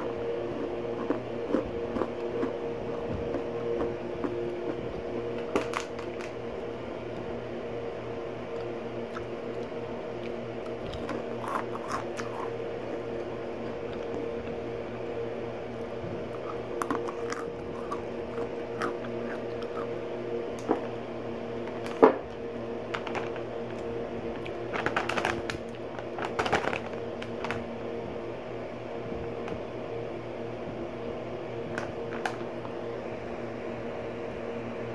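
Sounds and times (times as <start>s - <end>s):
snacks being chewed: 0.0s - 6.4s, 8.5s - 14.6s, 15.7s - 20.9s
low hum: 0.0s - 34.9s.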